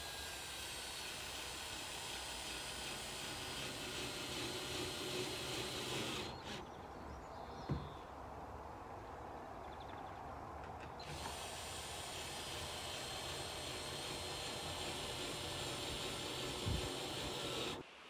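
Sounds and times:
cordless drill into wood: 0:00.0 - 0:06.7, 0:11.0 - 0:17.9.

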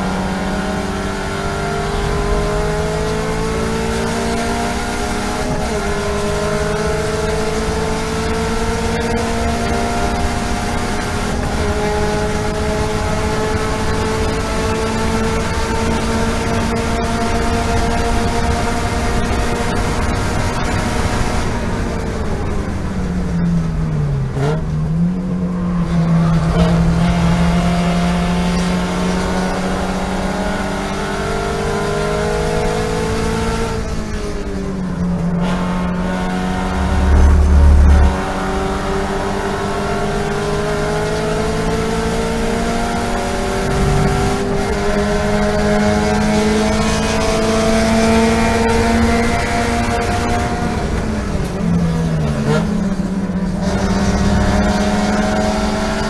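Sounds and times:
race car engine at full throttle: 0:00.0 - 0:56.0
loud low rumble: 0:35.7 - 0:39.2, 0:43.4 - 0:45.9.

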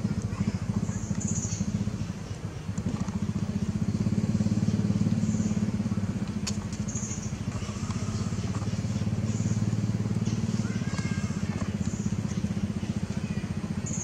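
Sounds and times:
small engine running: 0:00.0 - 0:14.0.

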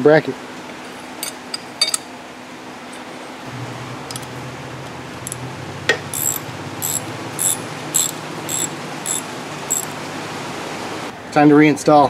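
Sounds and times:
ratchet wrench clicking: 0:06.1 - 0:10.0.

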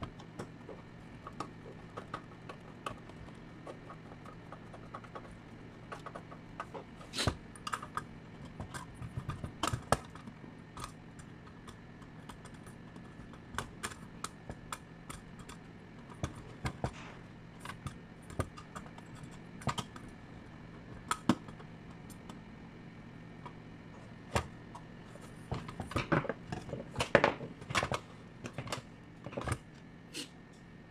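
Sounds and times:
faint steady hum: 0:00.0 - 0:30.9.

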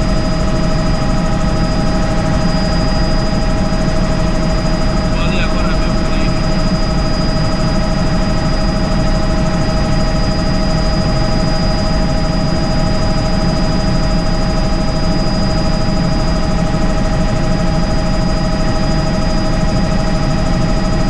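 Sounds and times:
constant high whine: 0:00.0 - 0:21.0
helicopter rotor and engine rumble: 0:00.0 - 0:21.0.

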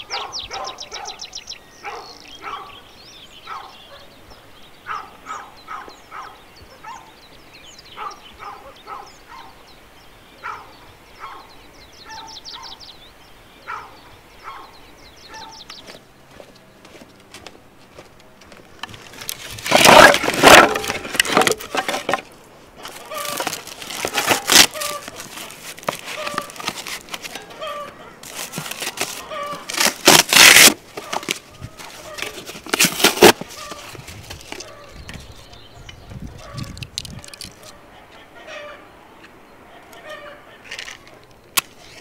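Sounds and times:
cardboard tearing and rustling: 0:18.9 - 0:35.2
hens clucking: 0:22.8 - 0:29.7.

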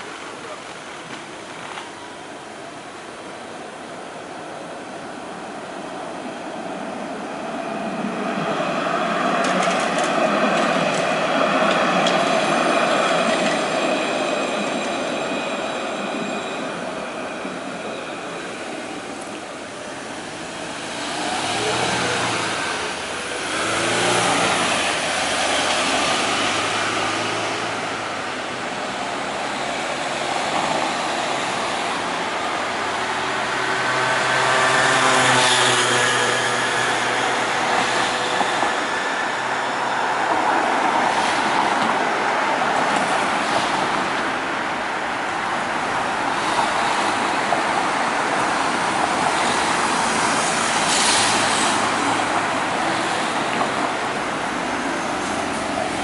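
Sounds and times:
cars driving past: 0:20.3 - 0:28.6, 0:33.0 - 0:40.1, 0:46.1 - 0:56.0
car passing close: 0:20.7 - 0:28.2.

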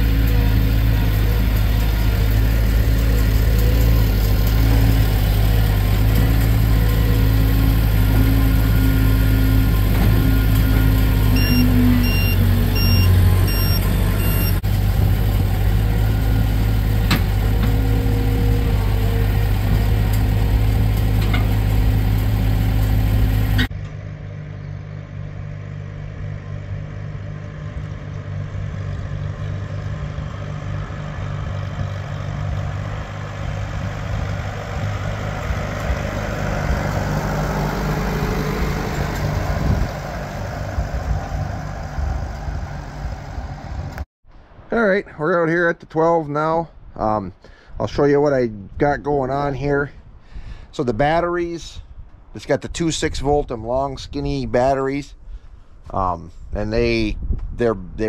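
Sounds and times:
loader engine running loudly: 0:00.0 - 0:44.0
tractor engine running: 0:00.0 - 0:44.6
short high beeps: 0:11.4 - 0:14.6.

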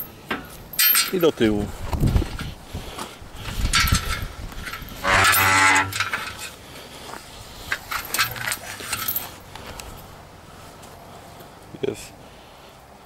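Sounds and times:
metallic clicks and knocks: 0:03.7 - 0:06.5
metal hinge squealing: 0:04.9 - 0:06.3.

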